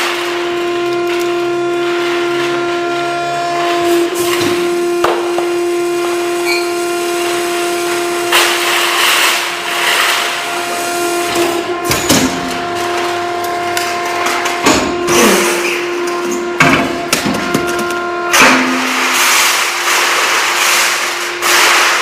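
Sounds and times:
grinding noise: 0.0s - 22.0s
industrial machinery humming: 0.0s - 22.0s.

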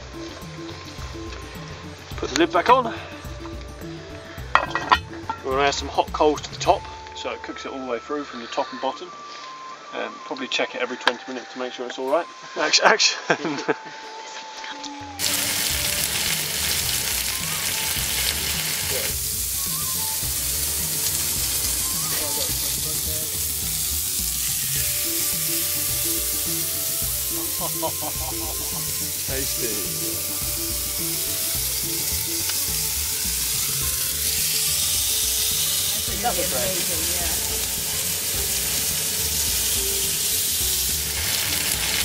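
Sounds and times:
background music with bass line: 0.0s - 7.2s, 14.7s - 42.0s
chicken sizzling in a pot: 15.2s - 42.0s.

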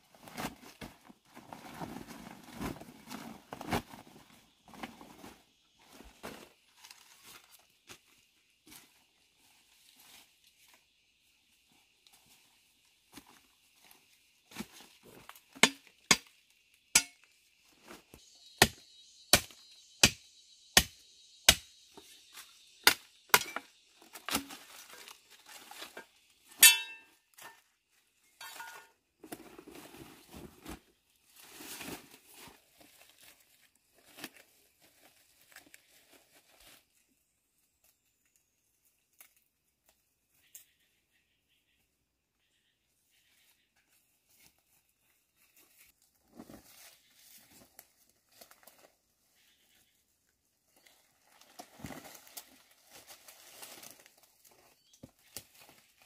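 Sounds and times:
rustling and handling noises: 0.0s - 10.9s, 23.8s - 37.0s, 43.9s - 49.4s, 50.7s - 56.0s.

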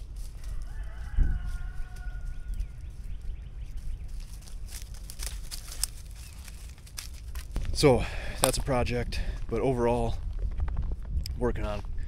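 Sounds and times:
dry leaves rustling: 0.0s - 8.8s
twigs crackling: 0.0s - 11.4s
wind rumble on microphone: 0.0s - 12.0s
rooster crowing: 0.3s - 2.8s.

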